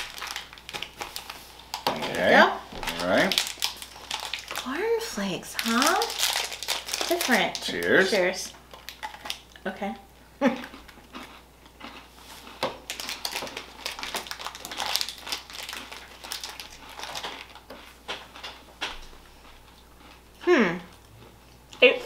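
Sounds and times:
crunchy chocolate bar chewing: 0:00.0 - 0:02.2, 0:02.8 - 0:04.7, 0:05.6 - 0:07.9, 0:08.7 - 0:09.6, 0:10.6 - 0:21.8
plastic wrapper crinkling: 0:00.0 - 0:09.5, 0:12.8 - 0:17.7.

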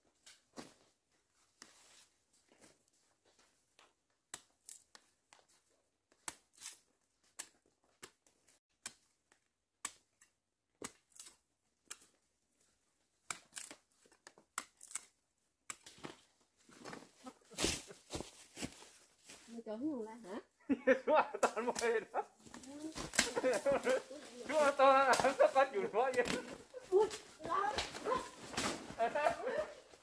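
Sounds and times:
dry leaves rustling: 0:22.5 - 0:29.8.

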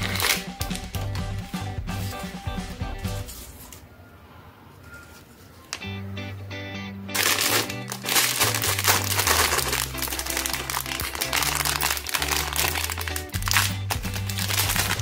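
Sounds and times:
plastic candy pouch crinkling: 0:00.0 - 0:00.8, 0:07.1 - 0:15.0
background music with bass line: 0:00.0 - 0:03.3, 0:06.0 - 0:15.0.

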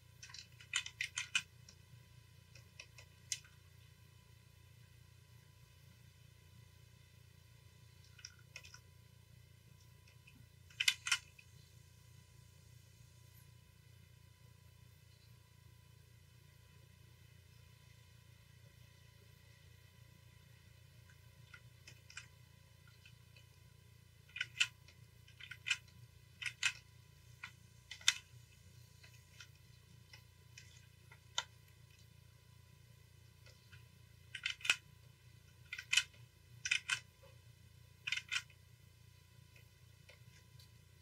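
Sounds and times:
low steady hum: 0:00.0 - 0:41.0
computer input clicks: 0:35.6 - 0:37.1.

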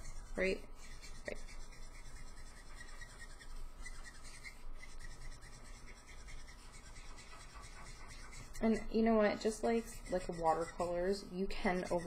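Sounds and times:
marker tip rubbing on paper: 0:00.0 - 0:12.0.

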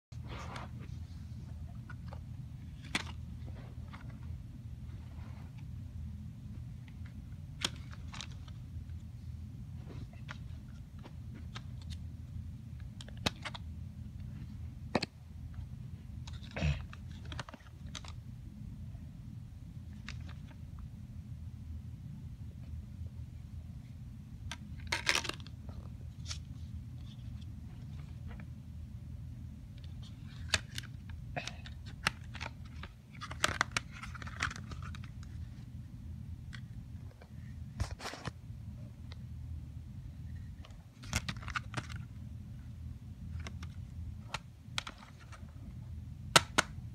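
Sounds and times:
steady low hum: 0:00.1 - 0:46.9
plastic cd case clicking: 0:13.0 - 0:13.6, 0:17.1 - 0:18.2, 0:29.8 - 0:35.3, 0:40.6 - 0:42.0, 0:43.3 - 0:45.4, 0:46.3 - 0:46.8.

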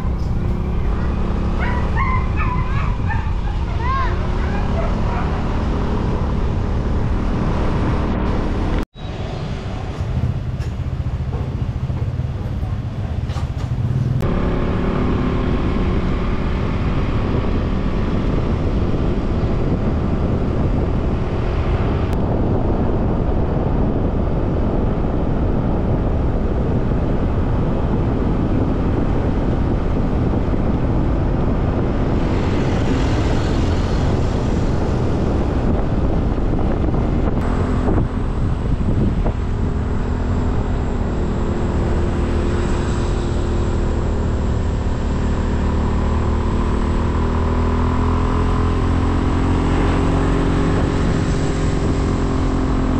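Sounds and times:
road and wind noise: 0:00.0 - 0:52.9
wind buffeting microphone: 0:00.0 - 0:52.9.

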